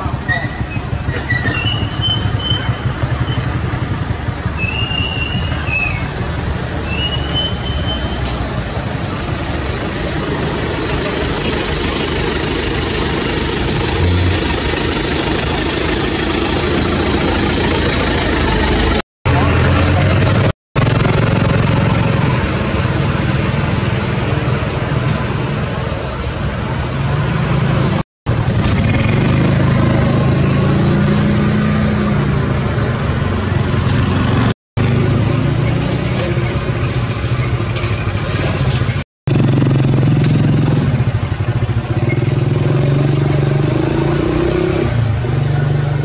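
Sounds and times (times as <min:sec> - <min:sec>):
motor engine running: 0:09.2 - 0:23.2.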